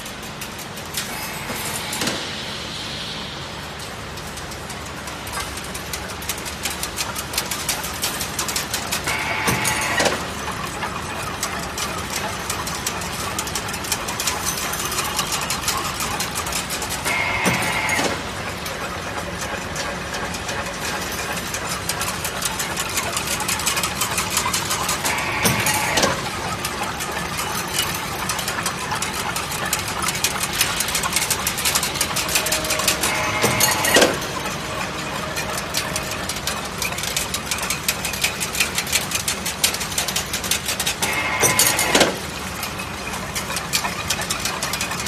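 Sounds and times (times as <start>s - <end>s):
machine humming: 0.0s - 44.8s
fast clatter of clicks: 35.5s - 45.0s.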